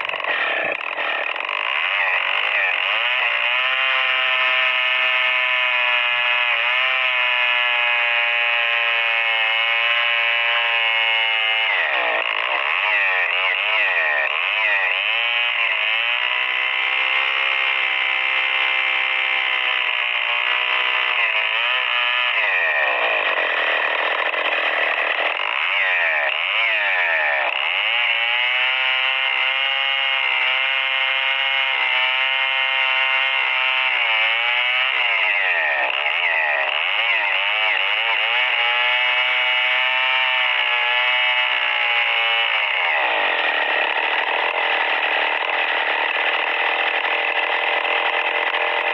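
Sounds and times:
chainsaw cutting log: 0.0 - 48.9.

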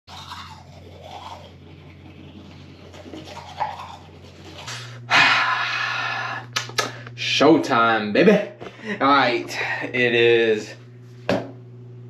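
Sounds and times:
toothbrush scrubbing teeth: 0.1 - 7.0
steady low hum: 0.1 - 12.0.

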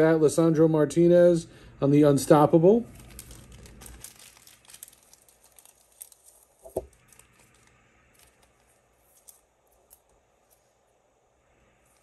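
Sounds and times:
cards and packaging rustling: 2.7 - 10.8.

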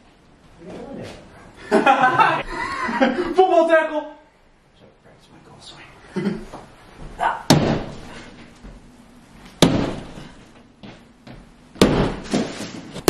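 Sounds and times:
sledgehammer striking drywall: 7.5 - 8.0, 9.6 - 10.3, 11.8 - 12.8.

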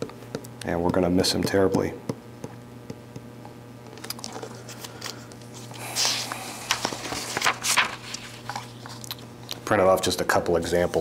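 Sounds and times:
low steady hum: 0.0 - 11.0
paper crinkling and rustling: 4.0 - 9.2.

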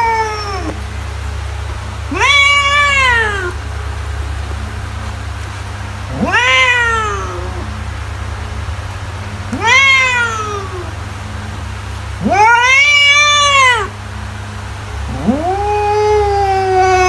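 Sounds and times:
cat meowing: 0.0 - 0.8, 2.1 - 3.6, 6.1 - 7.8, 9.5 - 10.9, 12.2 - 13.9, 15.1 - 17.0
steady low hum: 0.0 - 17.0.

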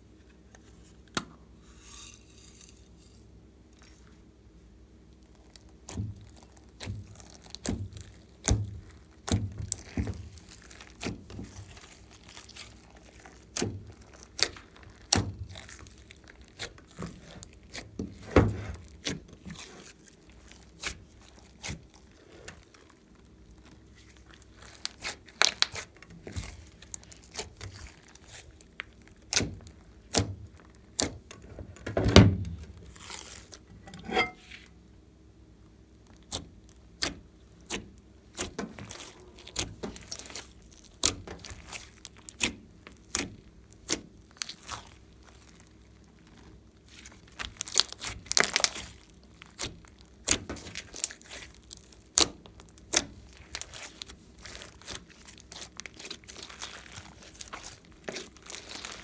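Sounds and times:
slime squelches: 5.0 - 31.4, 32.5 - 34.7, 35.9 - 59.0
slime popping and crackling: 5.2 - 31.4, 35.9 - 59.0.

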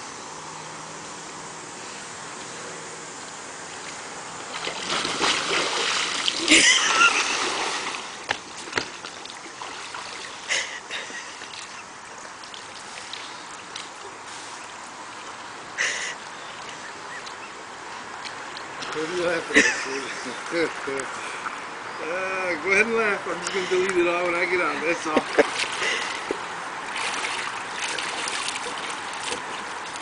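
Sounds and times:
small splashes: 3.7 - 17.4, 25.2 - 30.0
water sloshing: 3.7 - 19.1, 25.2 - 30.0
big splash into water: 4.5 - 9.0.

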